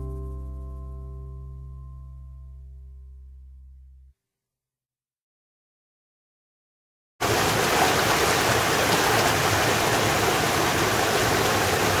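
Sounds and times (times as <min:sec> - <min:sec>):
stream rushing over rocks: 0:07.2 - 0:12.0.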